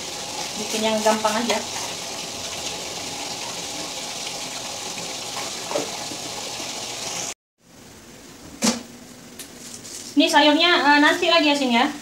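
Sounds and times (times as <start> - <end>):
fish sizzling in oil: 0.0 - 7.4.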